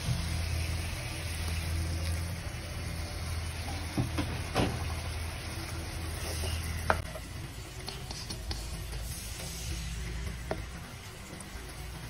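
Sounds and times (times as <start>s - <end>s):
spatula scraping a wok: 6.1s - 7.2s, 7.9s - 10.7s.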